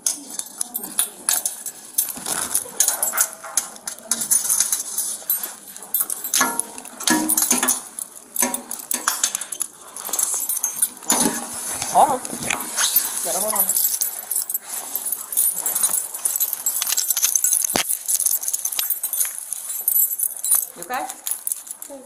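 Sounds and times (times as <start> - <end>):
metal handcuffs clinking: 0.0 - 22.0
clothing brushing: 10.0 - 19.9.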